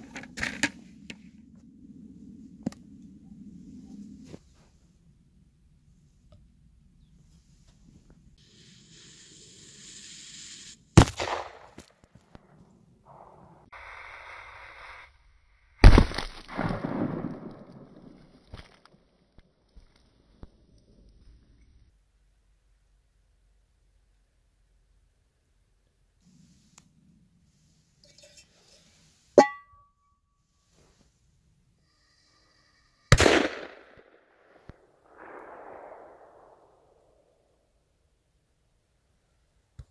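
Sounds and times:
firecracker fuse hissing: 8.4s - 11.8s, 13.7s - 15.1s.

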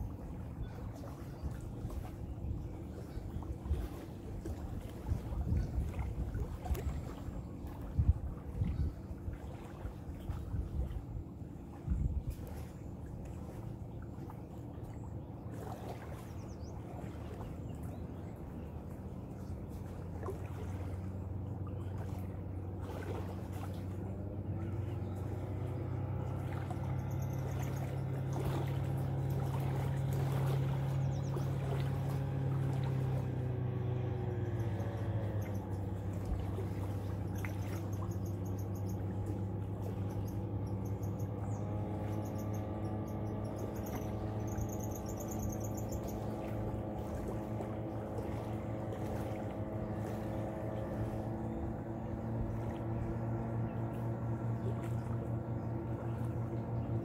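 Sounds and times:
motorboat engine droning: 0.0s - 57.0s
small waves lapping at shore: 0.0s - 57.0s
faint insect chirps: 42.2s - 46.1s.

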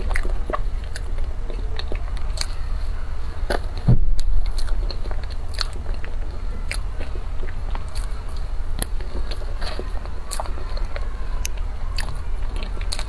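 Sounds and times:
wet chewing mouth sounds: 0.0s - 13.0s
low thump: 3.8s - 4.4s.

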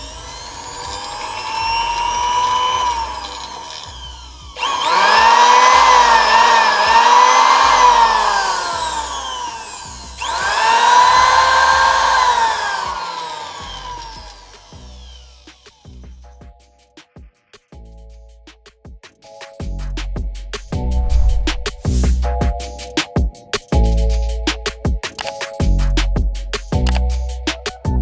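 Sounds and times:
electric motor whining: 0.0s - 16.0s.

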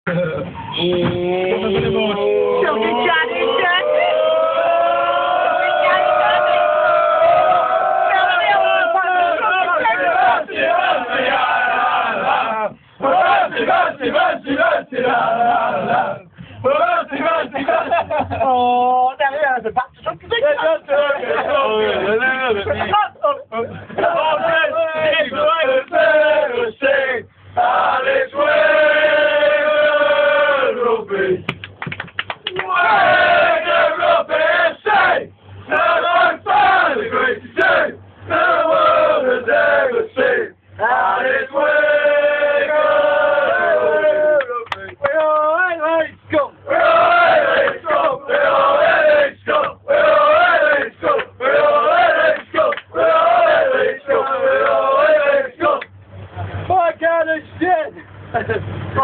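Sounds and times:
men singing a chant: 8.2s - 18.5s, 24.0s - 31.5s, 32.6s - 45.6s, 46.7s - 55.9s.

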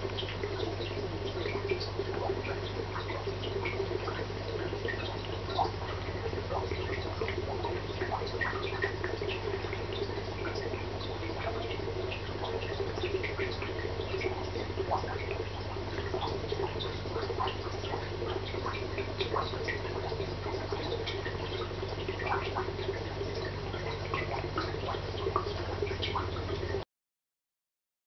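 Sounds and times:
low electrical hum: 0.0s - 26.8s
water bubbling: 0.0s - 26.8s
water dripping plinks: 0.0s - 26.8s.

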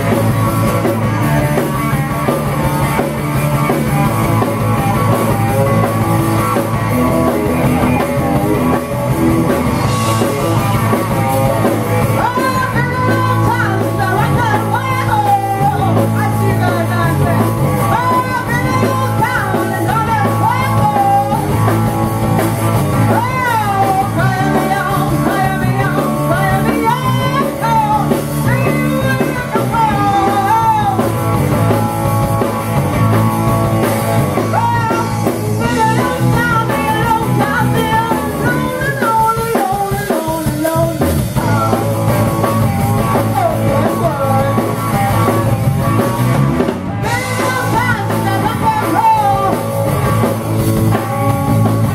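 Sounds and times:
rock and roll band playing: 0.0s - 51.9s
woman singing: 12.0s - 21.7s, 23.0s - 31.7s, 34.4s - 42.2s, 43.0s - 45.1s, 47.0s - 49.8s.

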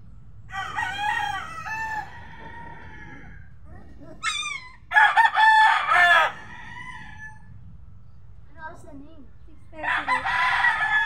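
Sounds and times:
rooster crowing: 0.5s - 3.5s, 4.2s - 7.6s, 9.8s - 11.0s.

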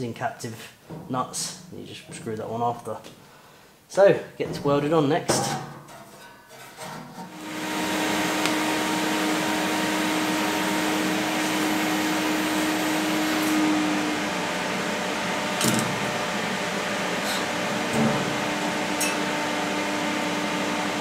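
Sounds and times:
welding equipment hiss and hum: 7.3s - 21.0s.

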